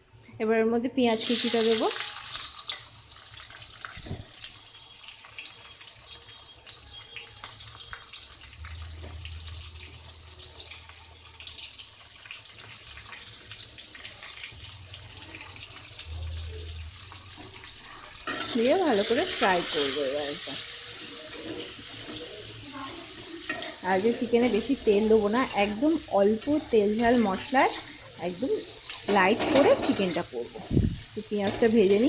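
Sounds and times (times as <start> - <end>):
onions sizzling in hot oil: 1.0 - 32.0.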